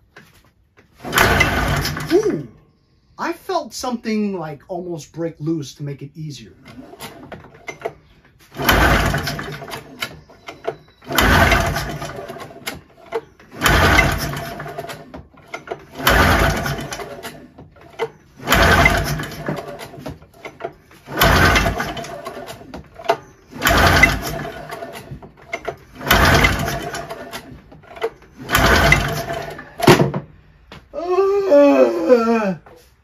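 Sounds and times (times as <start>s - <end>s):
engine pull-starter cranking: 1.0s - 2.5s, 6.6s - 30.3s.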